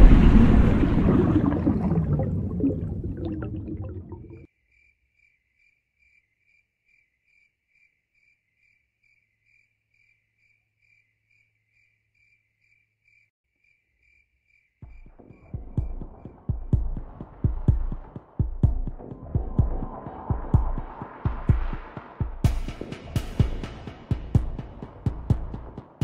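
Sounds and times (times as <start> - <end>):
cricket chirping: 4.5 - 16.5.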